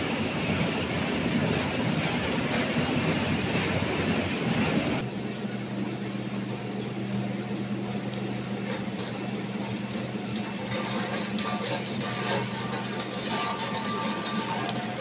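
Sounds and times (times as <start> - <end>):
seasoning drums rushing: 0.0 - 5.0, 8.4 - 15.0
conveyor low drone: 0.0 - 15.0
motor hum: 0.0 - 15.0.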